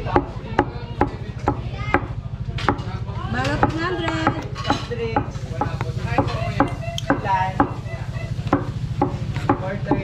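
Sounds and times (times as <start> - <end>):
cleaver chopping on wooden board: 0.0 - 7.8, 8.5 - 10.0.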